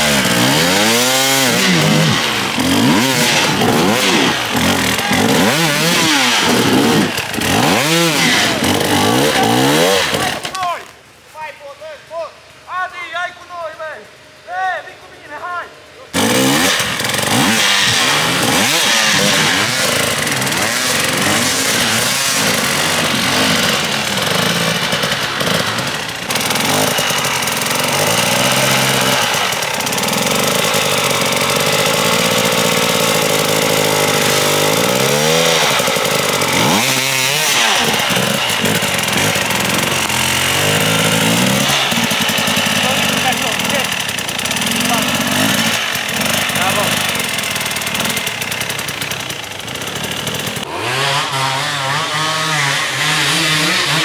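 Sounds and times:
two-stroke motorcycle engine revving: 0.0 - 10.6, 16.1 - 54.0.

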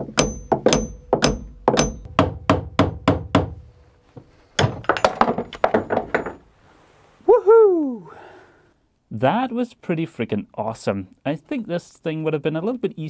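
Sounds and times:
hammer blows on steel: 0.0 - 3.7.

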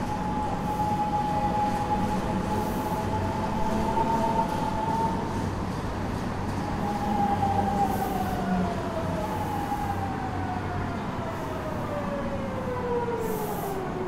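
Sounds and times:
train running gear rumble: 0.0 - 9.9.

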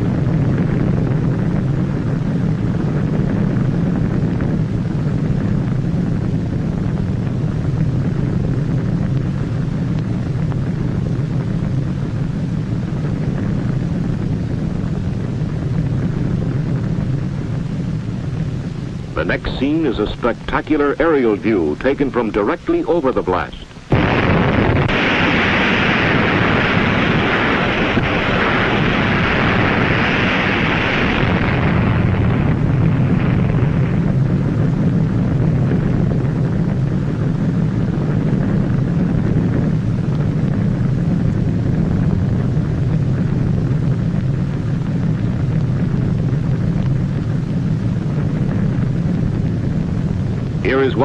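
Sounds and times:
loud roaring rumble: 0.0 - 51.0
strong hissing: 17.3 - 34.2, 49.3 - 51.0.

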